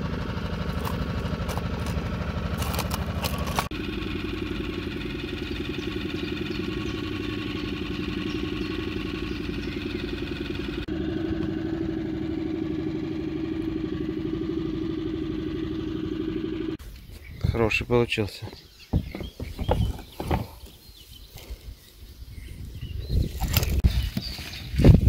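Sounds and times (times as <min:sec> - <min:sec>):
small boat motor running: 0:00.0 - 0:16.8.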